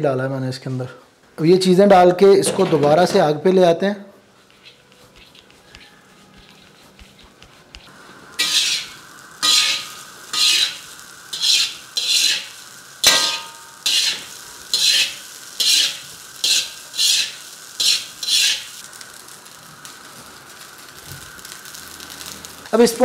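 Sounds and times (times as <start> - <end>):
rice sizzling in a wok: 4.3 - 23.0
metal spatula clinking on wok: 13.0 - 14.0.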